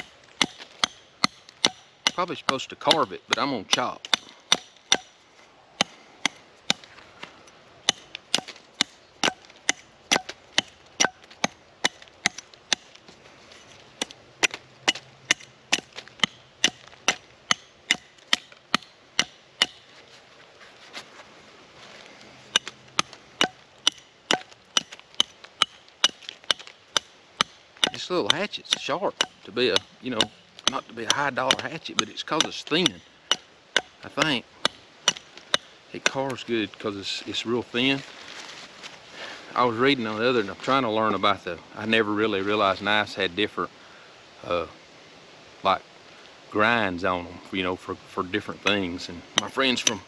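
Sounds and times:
hatchet chopping wood: 0:00.0 - 0:05.2, 0:05.8 - 0:06.9, 0:07.8 - 0:13.0, 0:14.0 - 0:19.9, 0:22.5 - 0:36.4, 0:49.4 - 0:50.0.

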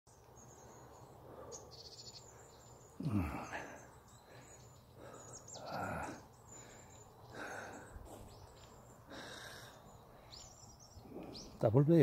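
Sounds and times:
birds chirping: 0:00.1 - 0:12.0
person breathing hard: 0:01.2 - 0:08.4, 0:09.0 - 0:10.4.

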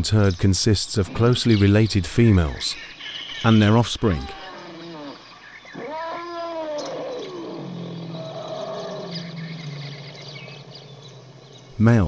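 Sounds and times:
elephant trumpeting: 0:03.6 - 0:11.8
elephant low call: 0:04.0 - 0:11.8.

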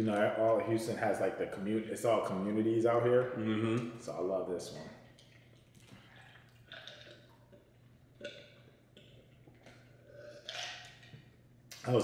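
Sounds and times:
low steady hum: 0:00.0 - 0:12.0
person swallowing a drink: 0:05.0 - 0:11.2
chewing: 0:05.0 - 0:11.8.

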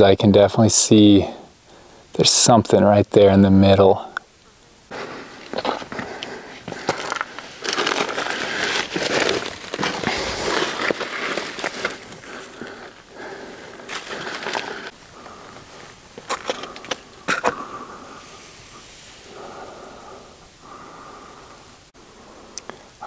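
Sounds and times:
dry brush scraping: 0:04.9 - 0:15.0
boots crunching on gravel: 0:04.9 - 0:17.6.

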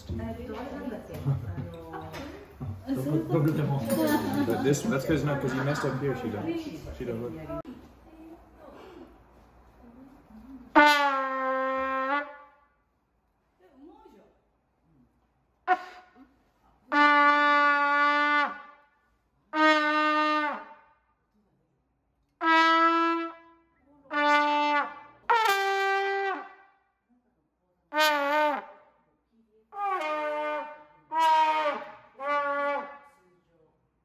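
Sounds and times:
trumpet notes: 0:10.7 - 0:12.7, 0:15.6 - 0:16.2, 0:16.9 - 0:18.9, 0:19.5 - 0:20.8, 0:22.4 - 0:26.7, 0:29.7 - 0:33.1.

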